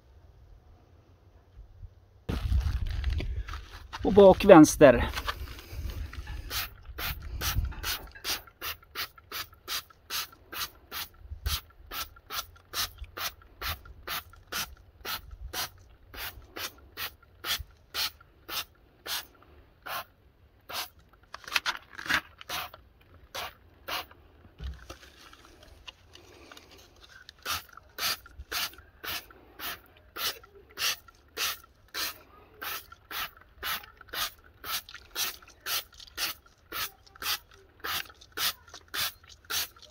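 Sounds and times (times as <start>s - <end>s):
trigger spray bottle squirting: 6.5s - 19.3s, 20.7s - 21.0s, 22.4s - 24.1s, 27.3s - 39.9s.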